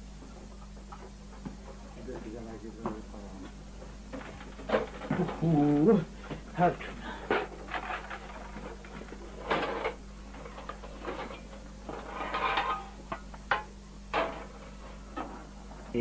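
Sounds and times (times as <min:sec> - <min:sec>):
steady low hum: 0:00.0 - 0:16.0
metal pot and lid clattering: 0:11.0 - 0:14.5.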